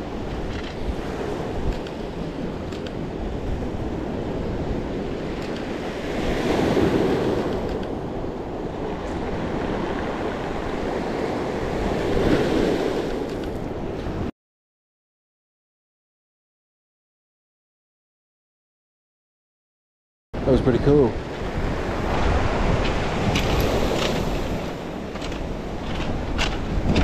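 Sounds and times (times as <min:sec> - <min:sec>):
waves washing over pebble beach: 0:00.0 - 0:13.3, 0:21.3 - 0:27.0
wind buffeting microphone: 0:00.0 - 0:14.3, 0:20.8 - 0:27.0.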